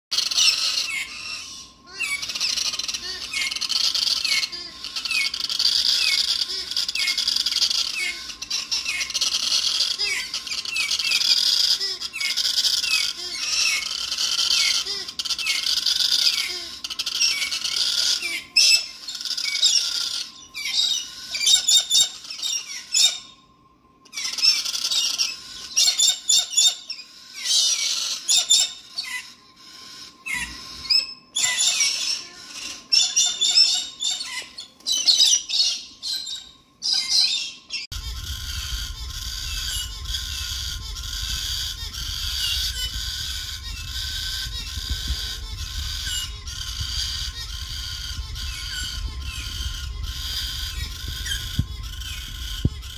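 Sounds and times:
cockatoos screeching: 0.2s - 23.3s, 24.1s - 52.9s
wind rumbling on microphone: 37.9s - 52.9s.

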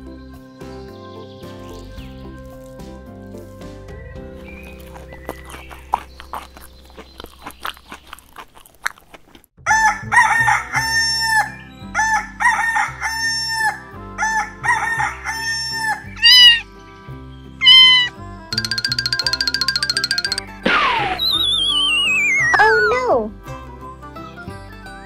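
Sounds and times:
playful cartoon music: 14.2s - 16.7s, 17.6s - 23.8s.

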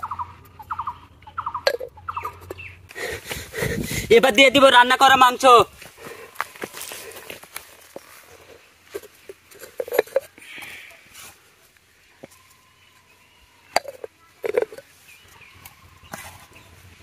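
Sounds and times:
clinks of clay pots: 1.6s - 2.6s, 7.9s - 10.8s, 13.7s - 14.9s.

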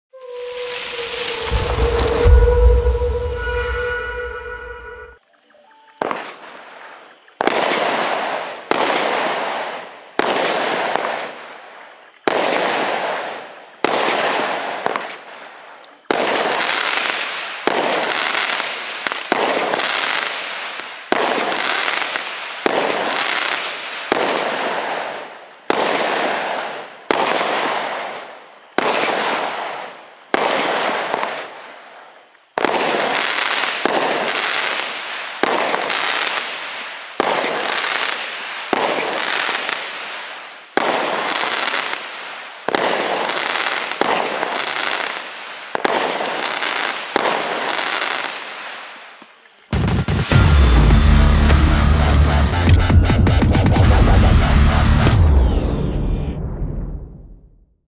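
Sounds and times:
fireworks cake firing shots: 7.4s - 11.4s, 12.3s - 15.3s, 16.1s - 31.6s, 32.6s - 36.6s, 37.2s - 48.8s.

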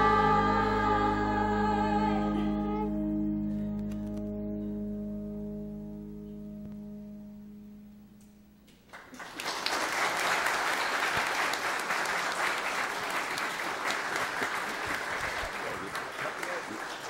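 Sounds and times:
held musical chord: 0.0s - 8.6s
congregation applauding: 8.9s - 17.0s.

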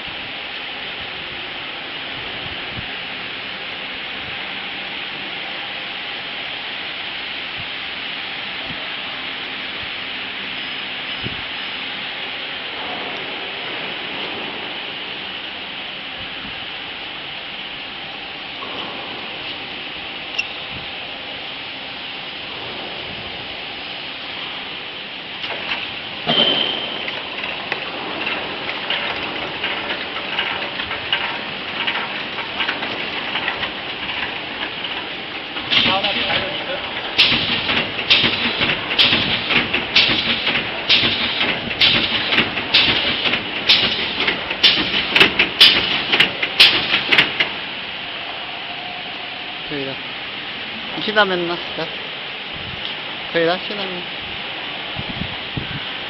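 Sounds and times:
hissing rattling bursts: 0.1s - 48.4s
packaging machine humming: 18.5s - 47.6s
sharp machine clicks: 35.6s - 47.5s.

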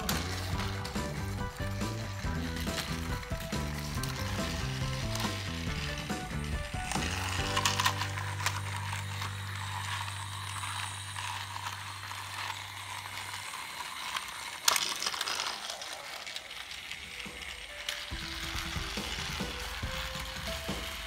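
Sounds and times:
toy train motor clicking rattle: 0.0s - 21.0s.

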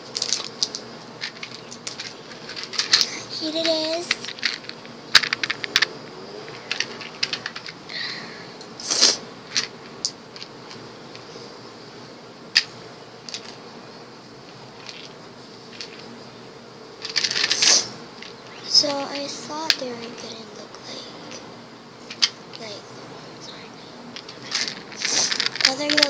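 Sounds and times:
tablets rattling: 0.0s - 8.1s, 8.9s - 11.4s, 12.5s - 13.6s, 14.5s - 16.1s, 17.0s - 20.4s, 22.1s - 22.8s, 24.1s - 26.0s.

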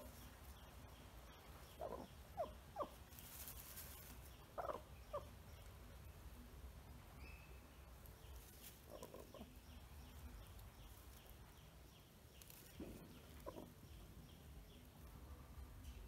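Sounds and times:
faint high chirps: 7.2s - 8.4s.

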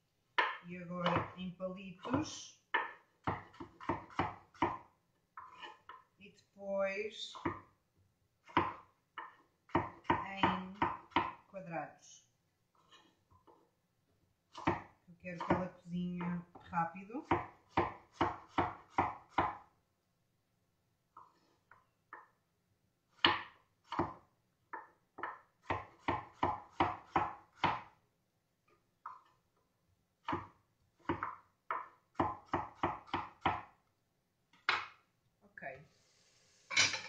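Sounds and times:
knife chopping on wooden board: 0.4s - 6.1s, 7.3s - 7.7s, 8.4s - 11.5s, 14.5s - 16.6s, 17.2s - 19.7s, 23.1s - 28.0s, 30.2s - 33.8s.

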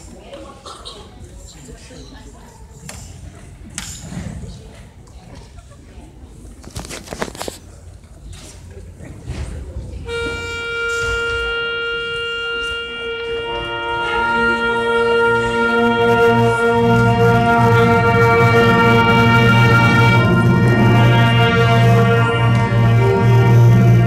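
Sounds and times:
concert band holding long notes: 10.1s - 24.0s.

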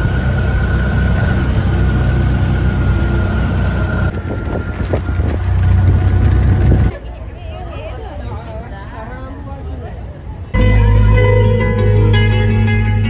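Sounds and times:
auto-rickshaw engine rumble: 0.0s - 8.7s.

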